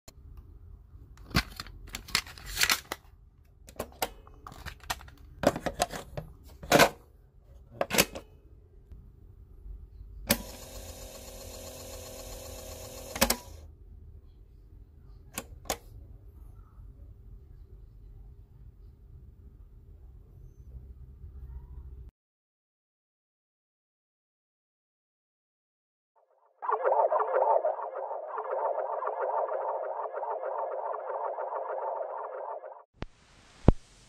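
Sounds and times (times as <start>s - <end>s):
tape player motor whirring: 10.3s - 13.6s.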